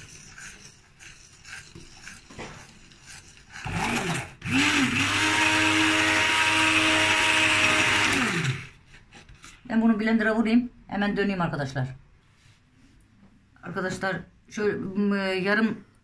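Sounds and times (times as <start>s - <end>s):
electric hand blender running: 3.5s - 8.8s.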